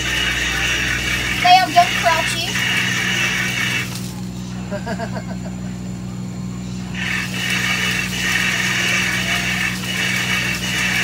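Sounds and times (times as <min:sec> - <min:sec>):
low hum: 0:00.0 - 0:11.0
loud hiss: 0:07.0 - 0:11.0.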